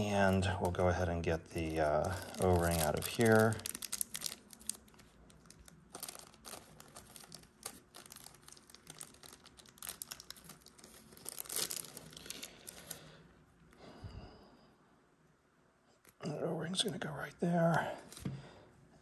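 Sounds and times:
plastic packaging crinkling: 0.0 - 13.2.

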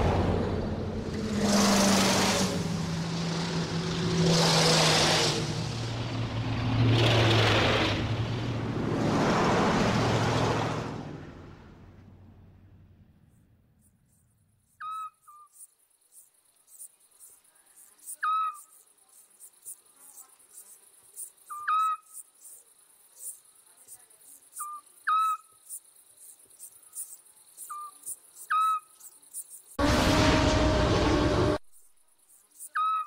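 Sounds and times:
low rumble: 0.0 - 3.7, 29.8 - 31.6
crickets chirring: 13.8 - 29.8, 31.7 - 33.0
owl whistled hoot: 14.8 - 15.5, 18.2 - 18.7, 21.5 - 22.2, 24.6 - 25.5, 28.5 - 28.9, 32.7 - 33.0.

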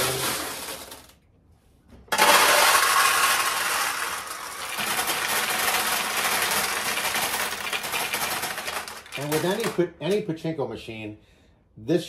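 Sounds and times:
steel balls clattering: 0.0 - 1.1, 2.1 - 10.2.

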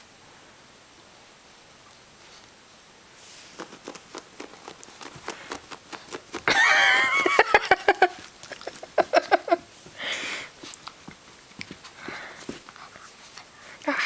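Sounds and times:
puppy scuffling with plush toy: 3.1 - 14.0.

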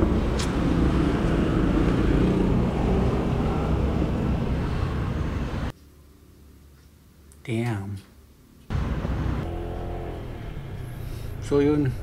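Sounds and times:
traffic rumble: 0.0 - 5.8, 8.7 - 12.0.

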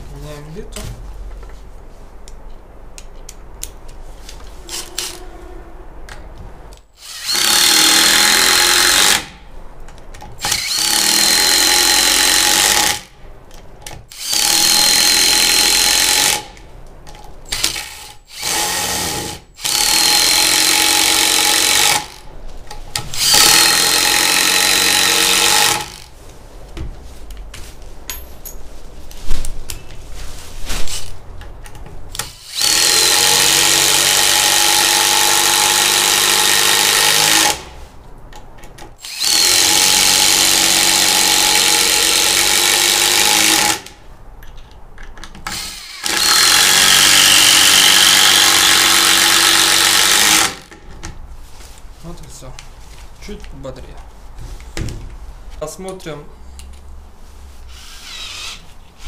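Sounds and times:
impact driver driving screws: 7.0 - 9.3, 23.0 - 26.1, 39.0 - 43.9, 45.4 - 50.7, 57.7 - 58.6.

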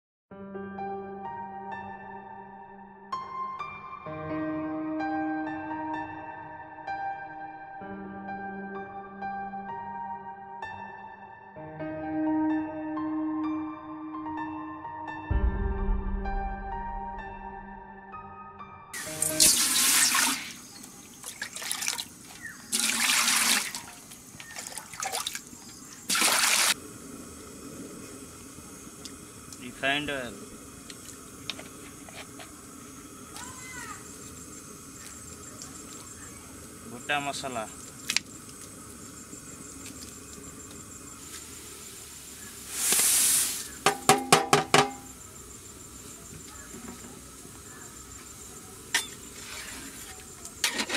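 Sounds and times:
water pouring into a metal pot: 19.0 - 25.4, 26.0 - 26.8
water trickling and dripping: 19.0 - 26.8
metal plate knocking on pot: 43.8 - 45.1.

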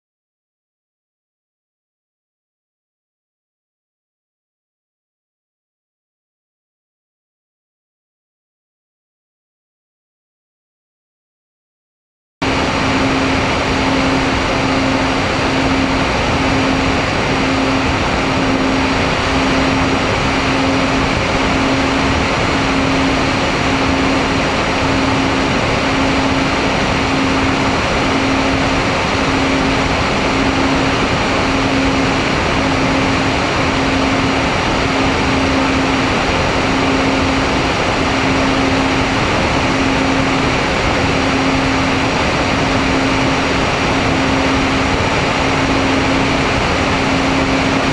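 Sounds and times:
electric motors and propellers droning: 12.4 - 47.9.

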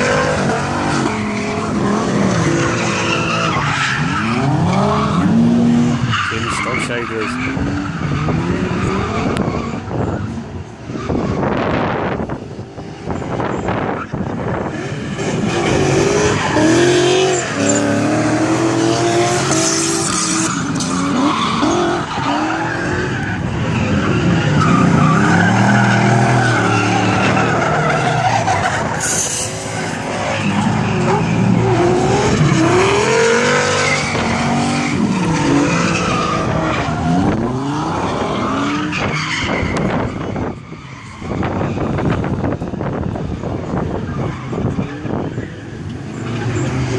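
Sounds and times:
tyres screeching: 0.0 - 9.8
car engines revving: 0.0 - 46.9.

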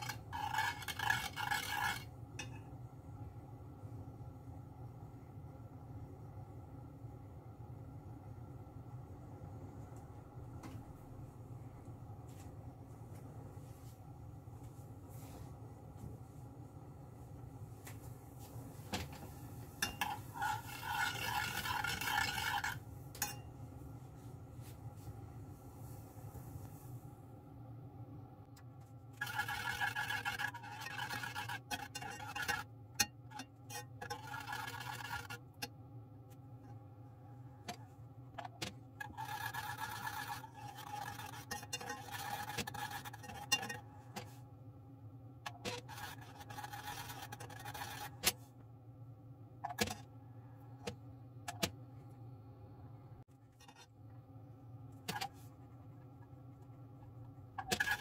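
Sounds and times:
utensils scraping against bowls: 0.0 - 2.6, 19.8 - 23.4, 29.2 - 35.7, 38.4 - 44.3, 45.5 - 48.4
steady low hum: 0.0 - 58.0.

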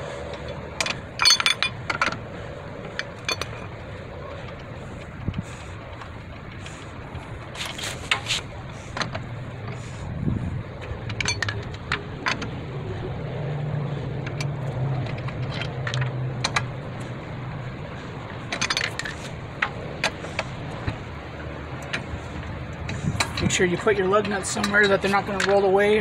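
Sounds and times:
low steady hum: 0.0 - 26.0
lug wrench and nuts clinking: 0.3 - 2.2, 2.9 - 3.7, 10.8 - 12.6, 18.3 - 20.9.

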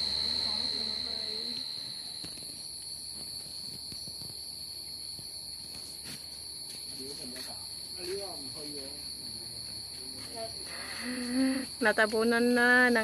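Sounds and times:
crickets chirring: 0.0 - 13.0.

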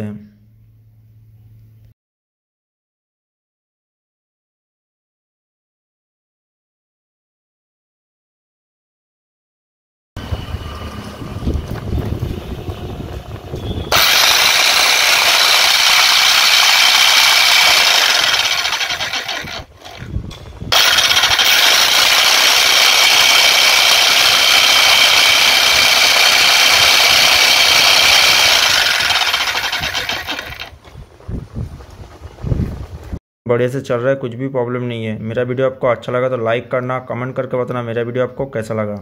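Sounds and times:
electric breaker hammer running: 10.2 - 30.8.

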